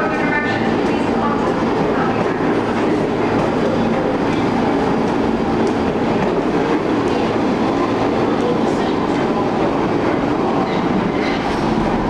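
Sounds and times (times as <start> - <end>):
train wheels rumbling on rails: 0.0 - 12.0.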